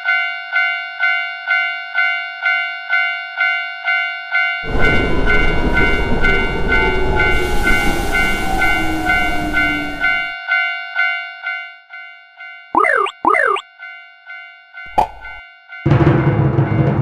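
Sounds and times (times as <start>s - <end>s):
railway crossing bell ringing: 0.0s - 12.7s, 13.7s - 15.8s
high-speed train rushing past: 4.6s - 10.4s.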